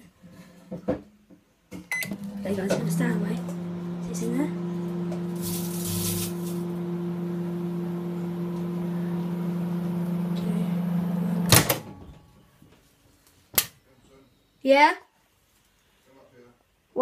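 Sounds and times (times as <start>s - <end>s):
microwave oven humming: 1.9s - 12.5s
microwave door click: 11.4s - 12.1s.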